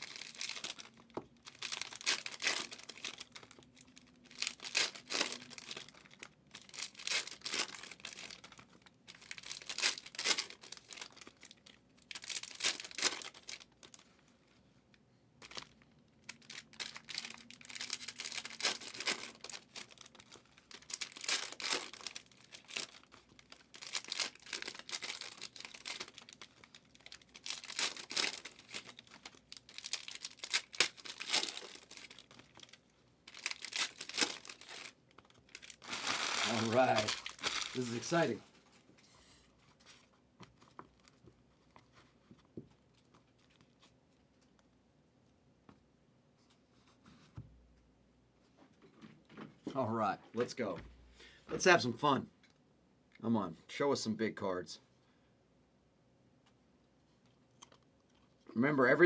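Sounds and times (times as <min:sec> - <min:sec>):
foil wrappers crinkling and tearing: 0:00.0 - 0:14.1, 0:15.4 - 0:38.4.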